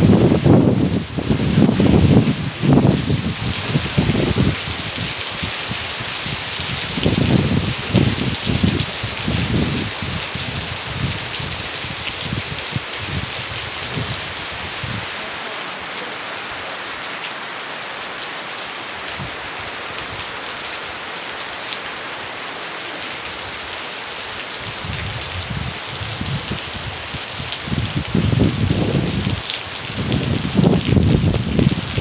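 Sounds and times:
low gusty rumbles: 0:00.0 - 0:15.3, 0:24.6 - 0:32.0
steady rain falling: 0:00.0 - 0:32.0.

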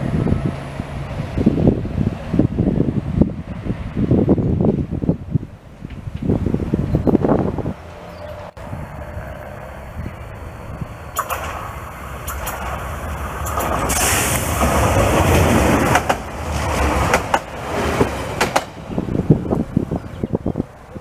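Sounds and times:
train wheels rumbling on rail: 0:00.0 - 0:21.0
sharp clicks of passing train: 0:05.8 - 0:06.4, 0:11.1 - 0:19.6.

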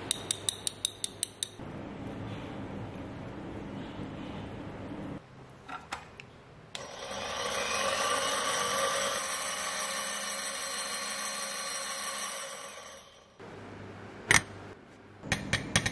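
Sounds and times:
drill press whirring: 0:06.8 - 0:13.2.

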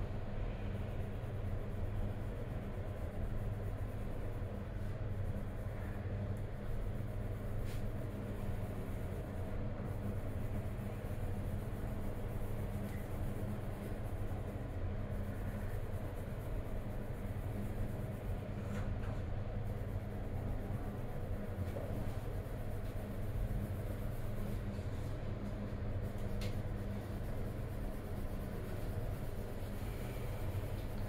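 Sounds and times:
steady low hum: 0:00.0 - 0:31.0
colored pencil scratching on paper: 0:06.7 - 0:18.6, 0:19.5 - 0:31.0.

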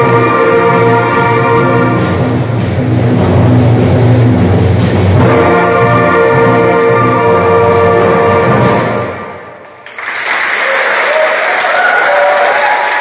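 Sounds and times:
brass and reed band chord: 0:00.0 - 0:09.3
audience applause: 0:09.7 - 0:13.0.

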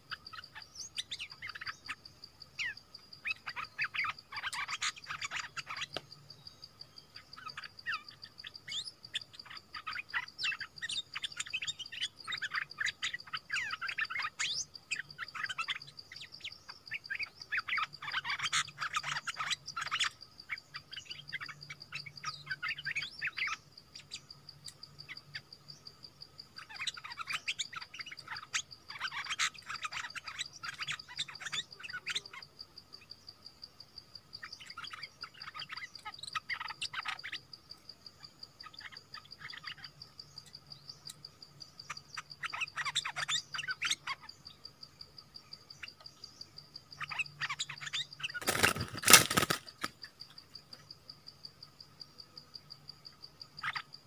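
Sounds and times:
high insect-like whine: 0:00.0 - 0:54.0
birds chirping and whistling: 0:02.6 - 0:06.0, 0:47.0 - 0:49.9.

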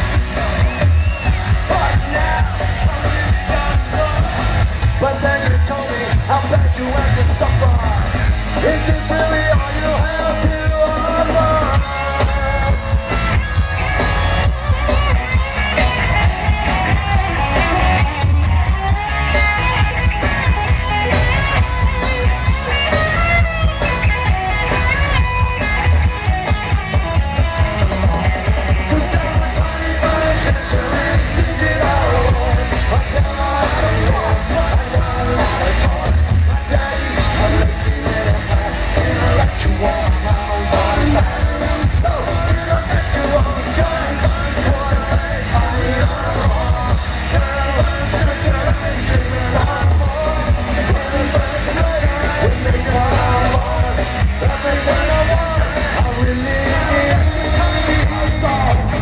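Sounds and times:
bass guitar: 0:00.0 - 0:59.0
distorted electric guitars: 0:00.0 - 0:59.0
drums: 0:00.0 - 0:59.0
person singing: 0:00.1 - 0:13.1, 0:25.2 - 0:59.0.

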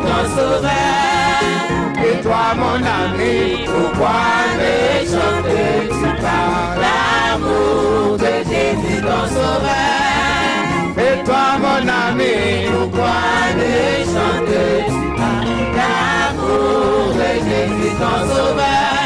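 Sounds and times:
man singing into microphone: 0:00.0 - 0:06.9, 0:11.0 - 0:13.0
bass line: 0:00.0 - 0:19.0
choir singing: 0:00.0 - 0:19.0
drum beats: 0:00.0 - 0:19.0.

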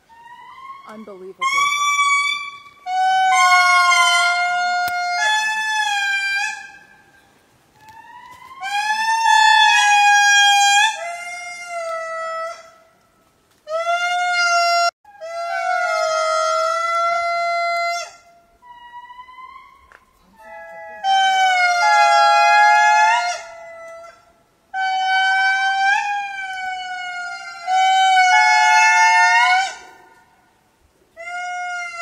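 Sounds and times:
lemur calls: 0:00.1 - 0:12.2.

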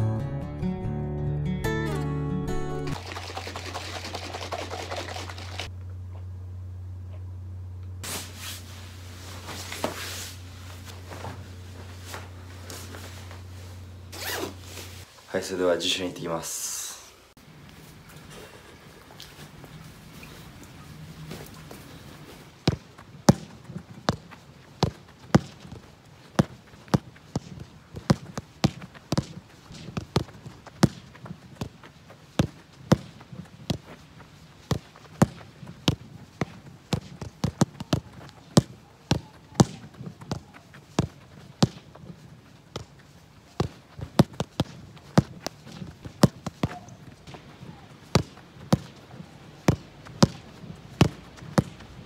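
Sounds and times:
football thudding against wall: 0:22.7 - 0:25.7.

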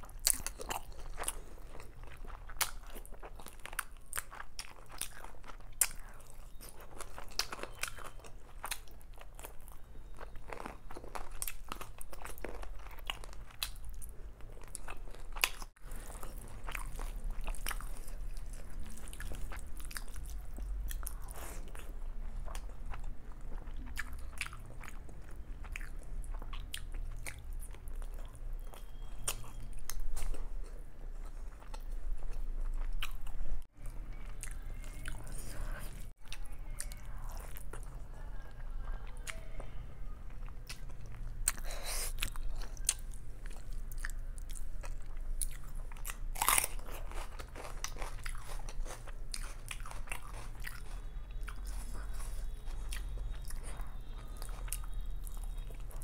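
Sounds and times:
wet chewing sounds: 0:00.0 - 0:39.4, 0:40.3 - 0:56.0
crunchy onion bite: 0:40.7 - 0:55.9.

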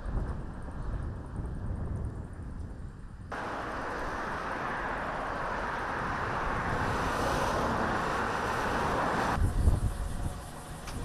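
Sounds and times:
cars passing on road: 0:03.2 - 0:11.0.

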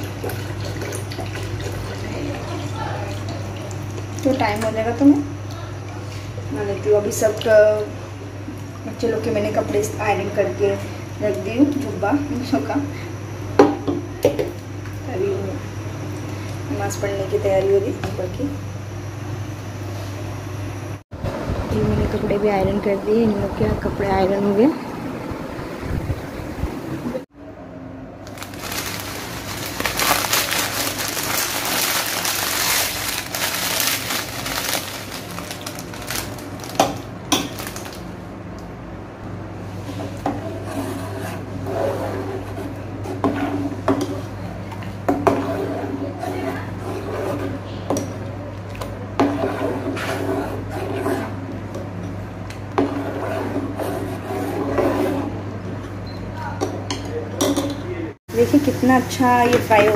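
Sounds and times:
plastic packet crinkling: 0:28.2 - 0:38.0
brittle noodles crackling: 0:28.2 - 0:38.1
ladle stirring and scraping pot: 0:39.7 - 0:51.8, 0:52.7 - 0:55.4.

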